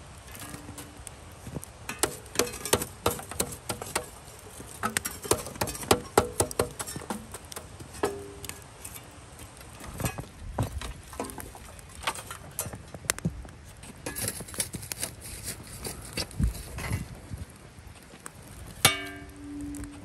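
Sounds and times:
tongs knocking through charcoal: 0:00.1 - 0:13.2, 0:18.8 - 0:20.0.

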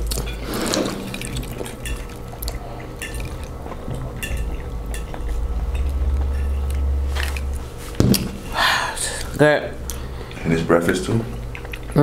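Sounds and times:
low hum: 0:00.0 - 0:10.5
wet chewing: 0:01.1 - 0:08.0, 0:11.3 - 0:12.0
forks tapping on plates: 0:01.2 - 0:02.2.

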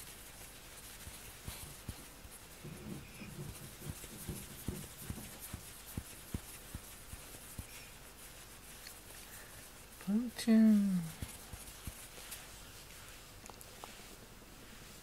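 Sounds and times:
fingers rubbing cat fur: 0:00.0 - 0:15.0.

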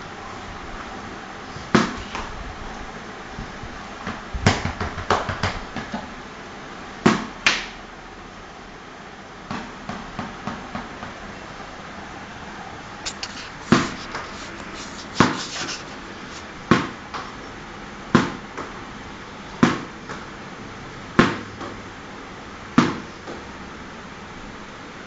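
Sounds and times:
steady background hiss: 0:11.3 - 0:16.7.

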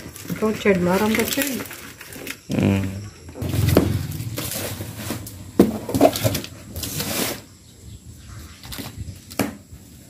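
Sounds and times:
sharp knocks: 0:03.4 - 0:06.8.

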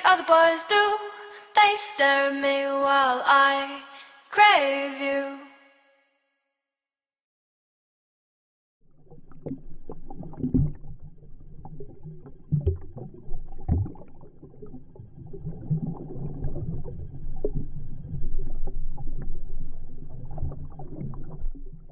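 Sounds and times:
muffled water rushing and gurgling: 0:08.9 - 0:21.9.

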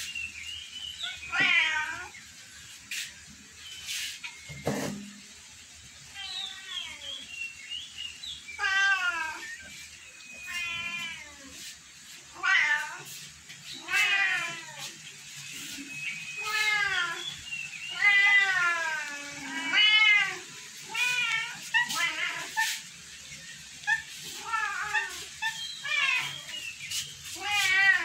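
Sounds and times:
cats meowing: 0:01.0 - 0:02.2, 0:06.1 - 0:07.3, 0:08.6 - 0:09.7, 0:10.3 - 0:11.6, 0:12.2 - 0:22.9, 0:23.6 - 0:26.7, 0:27.3 - 0:28.0.

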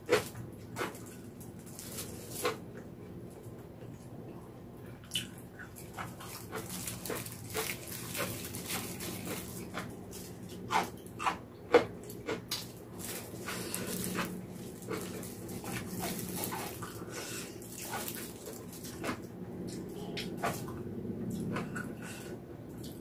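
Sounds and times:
wet chewing: 0:05.0 - 0:22.1.

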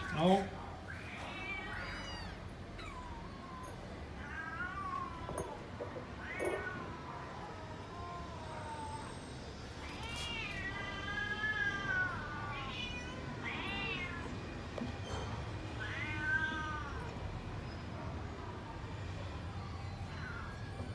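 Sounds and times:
cat meowing: 0:00.0 - 0:14.6, 0:15.6 - 0:17.4.

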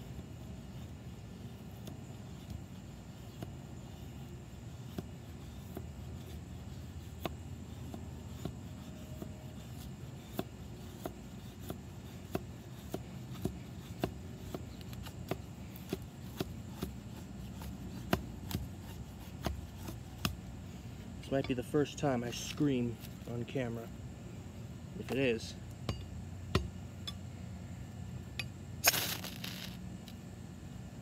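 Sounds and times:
knife scraping wooden stick: 0:00.0 - 0:23.8
low background hiss: 0:00.0 - 0:31.0.

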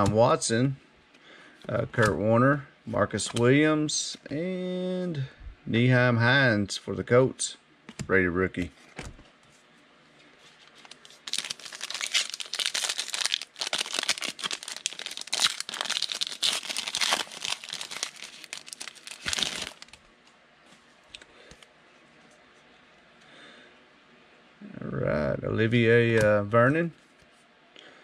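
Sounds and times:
foil wrapper crackling: 0:10.8 - 0:20.0.

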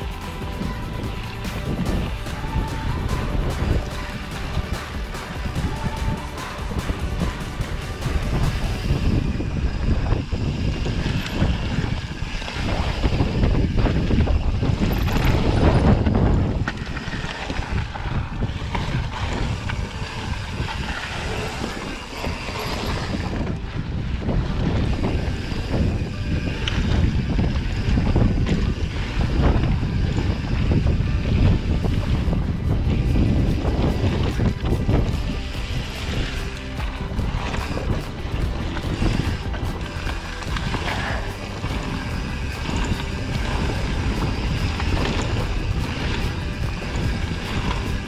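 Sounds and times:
bike rattling over rocks: 0:00.0 - 0:48.0
wind buffeting microphone: 0:00.0 - 0:48.0
tyres crunching on gravel: 0:31.7 - 0:48.0.

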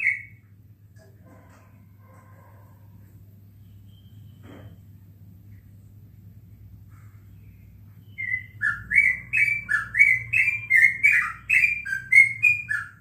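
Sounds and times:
bird singing whistled notes: 0:00.0 - 0:00.4, 0:03.6 - 0:04.4, 0:08.0 - 0:13.0.

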